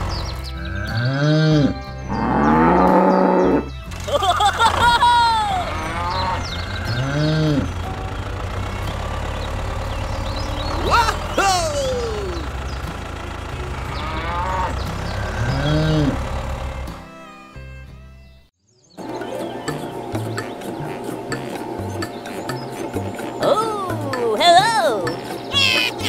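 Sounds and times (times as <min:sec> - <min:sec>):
cattle mooing: 0:00.6 - 0:03.7, 0:05.4 - 0:08.0, 0:13.7 - 0:16.3
low engine-like rumble: 0:01.6 - 0:17.1.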